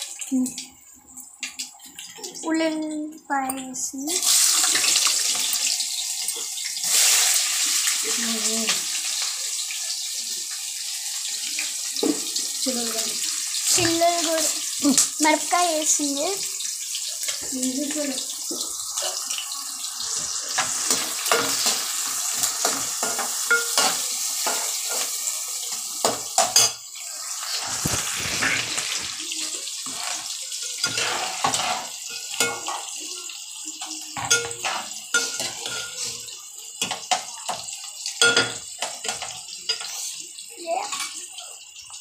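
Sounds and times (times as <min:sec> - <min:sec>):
onions sizzling in hot oil: 0:00.0 - 0:42.0
spoon scraping a metal pot: 0:29.8 - 0:32.8.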